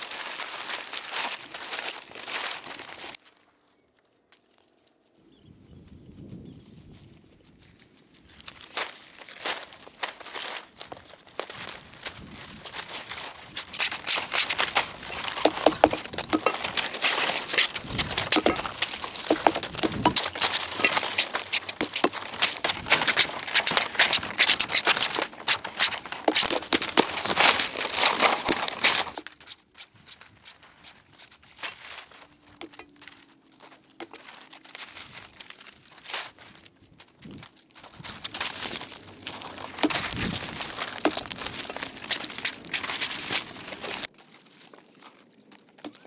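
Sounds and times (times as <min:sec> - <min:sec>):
palm fronds crackling rustle: 0:00.0 - 0:05.2, 0:07.5 - 0:46.0
sharp clicks of fronds: 0:08.5 - 0:36.7.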